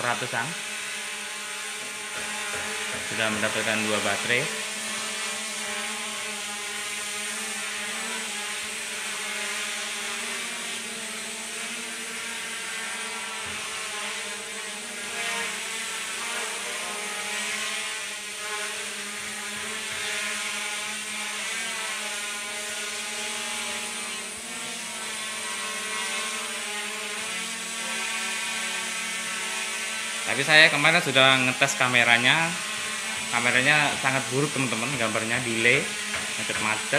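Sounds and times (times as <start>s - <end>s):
drone propellers buzzing whine: 0.0s - 36.9s.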